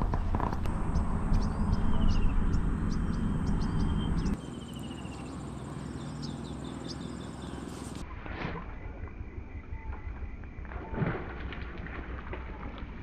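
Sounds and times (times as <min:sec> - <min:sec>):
low rumble on microphone: 0:00.0 - 0:13.0
birds chirping: 0:00.6 - 0:08.0
rapid bird trill: 0:00.7 - 0:08.0.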